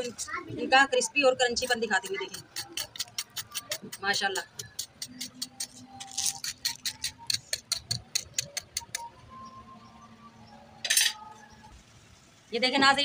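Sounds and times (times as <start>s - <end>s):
metal spoon tapping crispy food: 1.6s - 9.0s.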